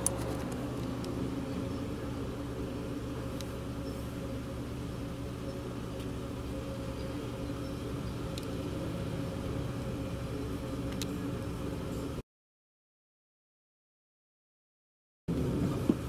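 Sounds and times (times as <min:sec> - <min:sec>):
car idling hum: 0:00.0 - 0:12.2, 0:15.3 - 0:16.0.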